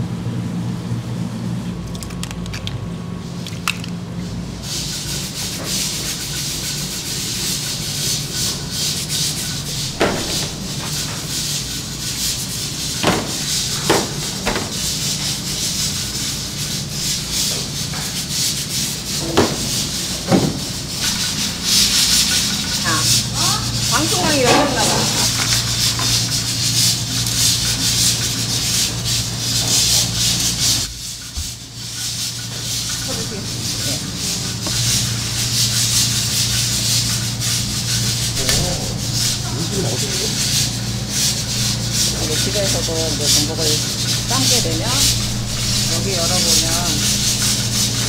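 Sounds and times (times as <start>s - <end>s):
rubbing scraping noise: 4.7s - 48.0s
low hum: 43.8s - 48.0s.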